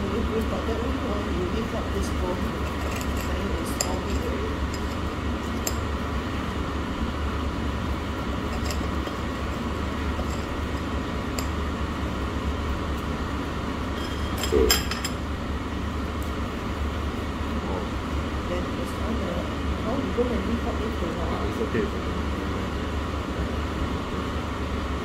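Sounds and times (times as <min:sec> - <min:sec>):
low room hum: 0:00.0 - 0:25.0
cutlery and tableware clinking: 0:02.7 - 0:05.0, 0:08.5 - 0:09.2, 0:14.0 - 0:15.2.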